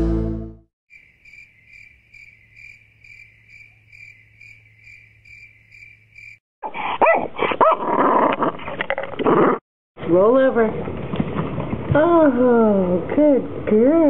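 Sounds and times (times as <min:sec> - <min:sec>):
cricket chirping: 0:00.9 - 0:06.4.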